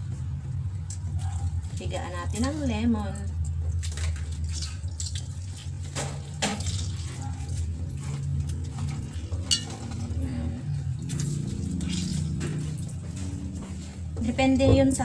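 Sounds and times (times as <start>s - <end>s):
metallic clink on steel bowl: 9.5s - 9.8s.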